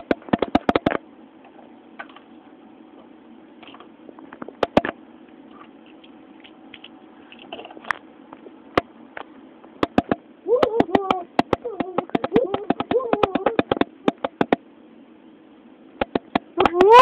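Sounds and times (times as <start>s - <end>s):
sharp clicks and taps: 0.0s - 1.0s, 4.6s - 5.0s, 9.8s - 14.6s, 16.0s - 16.9s
faint steady hum: 0.0s - 17.0s.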